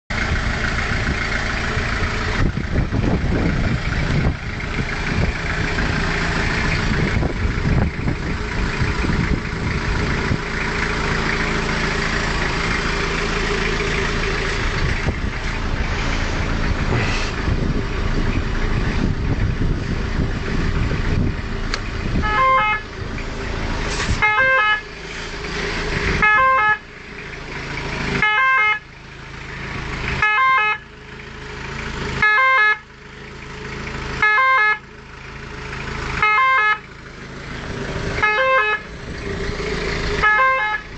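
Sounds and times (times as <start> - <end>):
motor vehicle and road noise: 0.1 - 40.9
ambulance two-tone siren: 22.2 - 22.8, 24.2 - 24.8, 26.2 - 26.9, 28.2 - 28.8, 30.2 - 30.8, 32.2 - 32.9, 34.2 - 34.8, 36.2 - 36.9, 38.2 - 38.9, 40.2 - 40.9.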